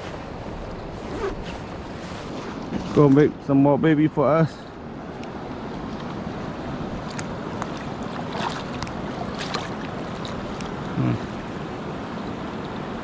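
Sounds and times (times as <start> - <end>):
river water rushing over gravel: 0.0 - 13.0
light splashes and clicks: 7.0 - 10.9
short low vocal sound: 10.9 - 11.4.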